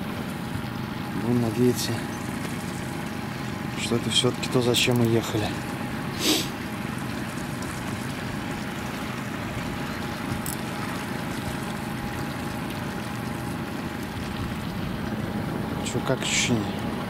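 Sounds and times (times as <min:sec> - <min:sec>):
outboard motor running: 0:00.0 - 0:17.0
water along hull: 0:00.0 - 0:17.0.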